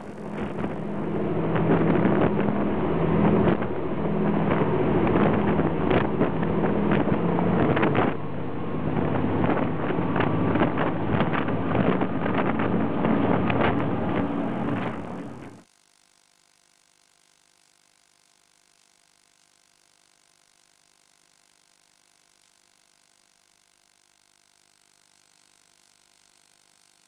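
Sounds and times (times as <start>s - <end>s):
diesel engines droning: 0.0s - 15.6s
wind buffeting microphone: 0.0s - 15.6s.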